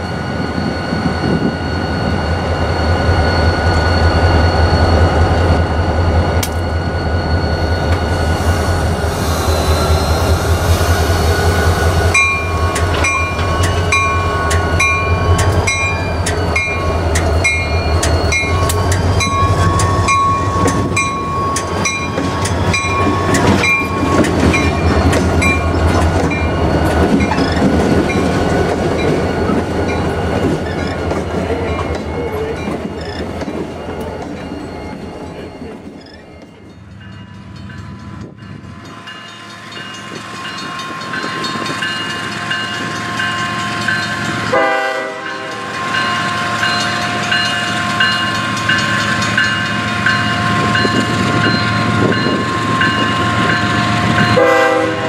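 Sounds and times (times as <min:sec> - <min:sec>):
diesel locomotives rumbling: 0:00.0 - 0:55.0
crossing bell dinging: 0:11.3 - 0:55.0.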